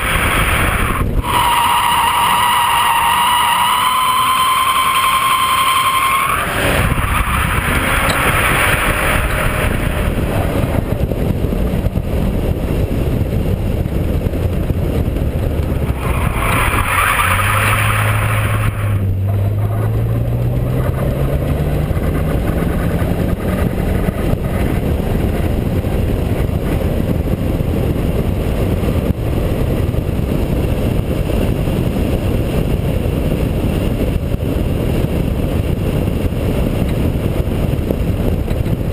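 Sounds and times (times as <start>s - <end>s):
car engine running hard: 0.0s - 38.9s
steady rush of noise: 0.0s - 38.9s
tyres squealing: 1.3s - 9.5s.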